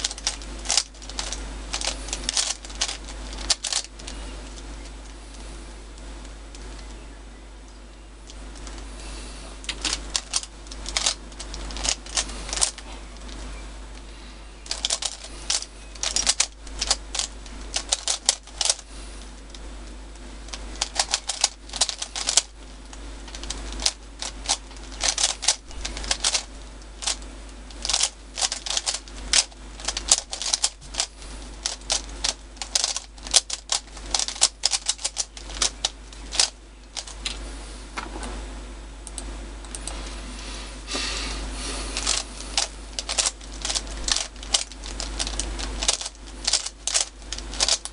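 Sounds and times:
plastic puzzle cube clacking: 0.0s - 4.6s, 9.7s - 13.4s, 14.7s - 18.8s, 20.5s - 22.5s, 23.3s - 37.1s, 42.0s - 47.9s.

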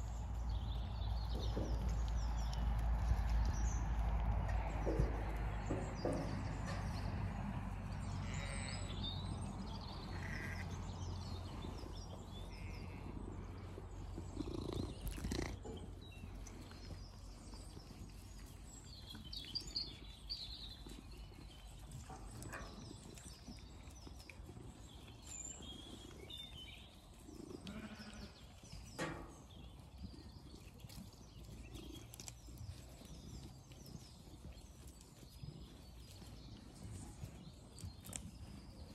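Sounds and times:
sheep moving and eating: 0.0s - 38.9s
sheep bleating: 8.2s - 8.9s, 10.1s - 10.6s, 27.6s - 28.4s.

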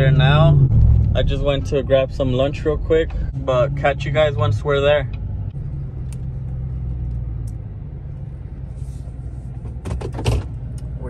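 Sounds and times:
pickup engine rumbling: 0.0s - 11.0s.

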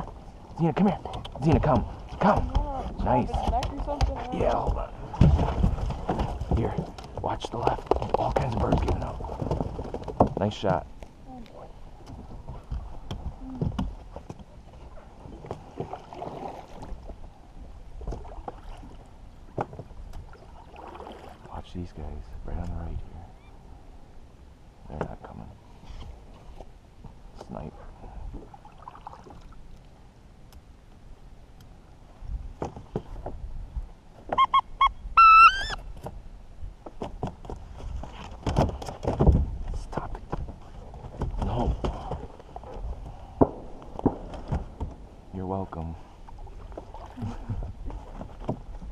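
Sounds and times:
water swishing and dripping off paddle: 13.9s - 17.2s, 18.0s - 21.5s, 46.1s - 48.9s
dog whining: 34.4s - 35.8s.

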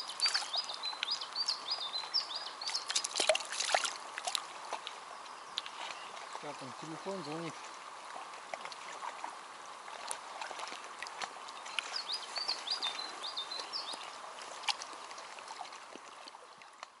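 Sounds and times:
bird chirping: 0.0s - 3.1s, 11.7s - 14.2s
water lapping and splashing: 0.0s - 17.0s.

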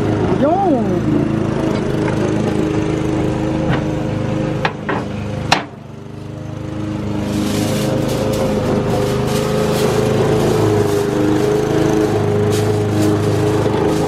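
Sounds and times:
small engine droning: 0.0s - 14.0s
metal grill grates clanking: 7.0s - 14.0s
aluminium foil crinkling: 7.1s - 14.0s.

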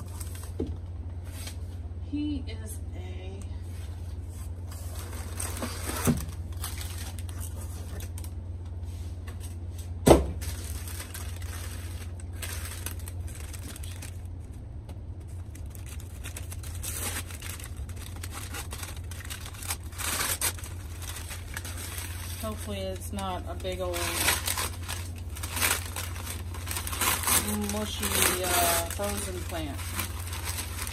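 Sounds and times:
paper crinkling and rustling: 0.0s - 0.6s, 4.0s - 8.4s, 10.4s - 14.5s, 15.2s - 30.9s
steady low hum: 0.0s - 30.9s.

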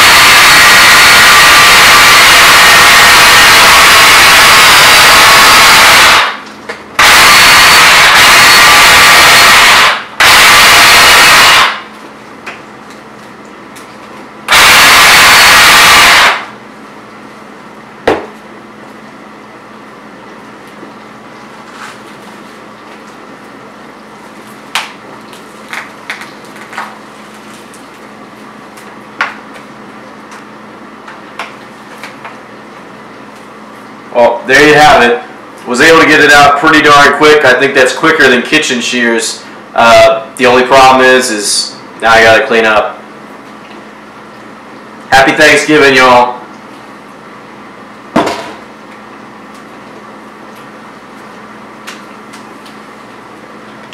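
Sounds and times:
steady hum: 0.0s - 53.9s
chainsaw set down on countertop: 48.2s - 48.6s.

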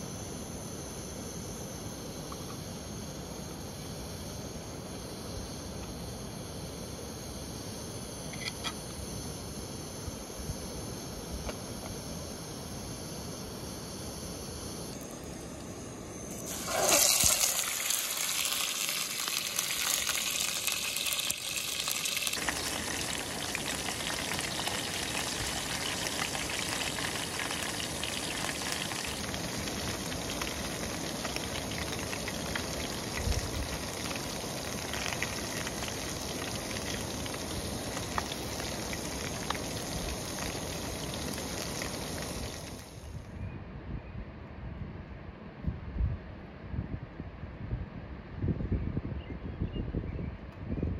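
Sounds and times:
stove hissing: 7.5s - 43.0s
fish sizzling in a pan: 16.2s - 43.0s.

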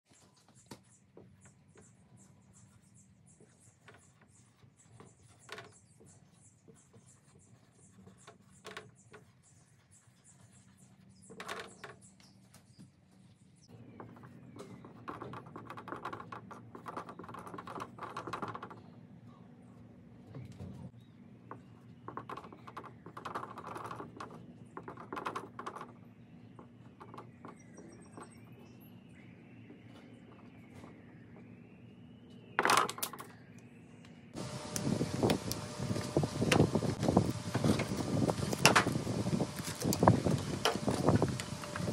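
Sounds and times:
marker squeaking on whiteboard: 0.1s - 13.2s, 13.9s - 19.0s, 21.5s - 28.9s.

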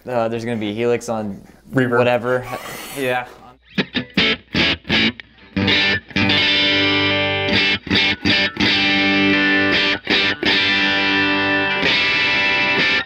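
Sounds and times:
distorted electric guitar chords: 3.6s - 13.0s.

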